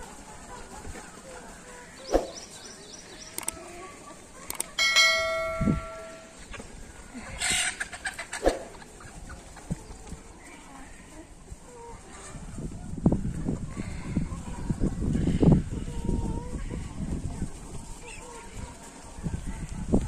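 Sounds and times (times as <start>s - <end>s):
chickens clucking: 0.0s - 20.0s
metallic clang ringing: 4.8s - 6.4s.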